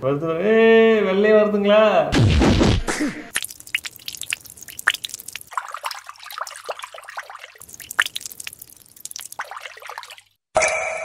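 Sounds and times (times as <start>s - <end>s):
liquid dripping into bottle: 3.3s - 10.4s.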